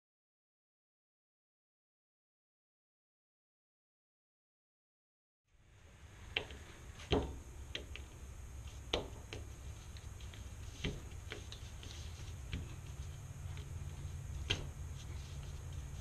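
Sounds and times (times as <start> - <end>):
low steady hum: 5.5 - 16.0.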